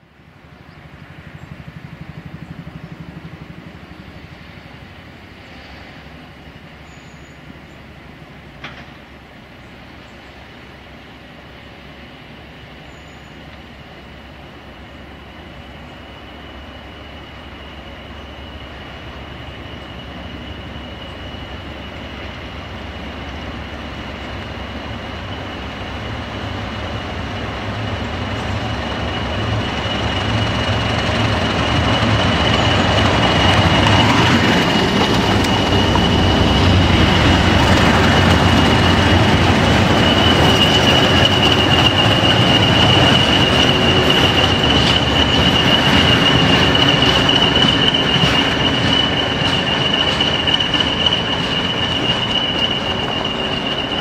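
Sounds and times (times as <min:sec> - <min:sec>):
diesel locomotive engine: 0:00.0 - 0:54.0
train wheel noise: 0:00.0 - 0:54.0
high whine: 0:23.4 - 0:54.0.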